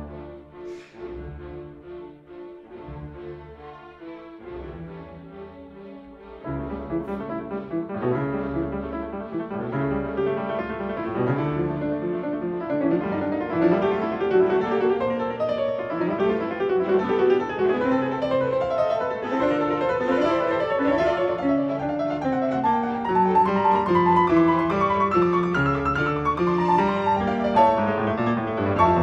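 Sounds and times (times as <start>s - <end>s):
classical piano music: 0.0s - 29.0s.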